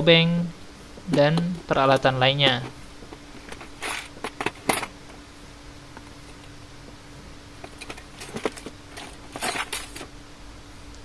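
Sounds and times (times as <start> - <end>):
metal tools clattering: 3.4 - 5.0, 7.6 - 10.1
plastic bags rustling: 7.6 - 10.2.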